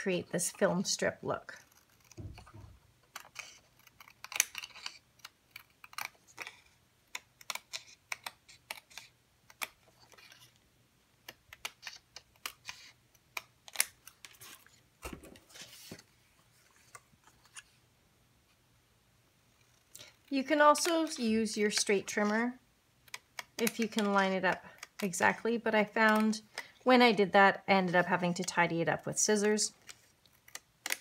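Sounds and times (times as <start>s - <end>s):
scissors snipping cardstock: 1.6s - 10.4s, 20.8s - 25.3s
paper rustling: 13.7s - 17.8s.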